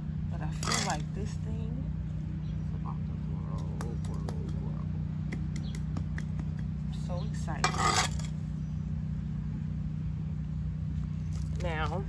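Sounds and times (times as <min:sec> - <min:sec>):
low mechanical hum: 0:00.0 - 0:12.0
trowel patting and scraping soil: 0:00.5 - 0:01.4.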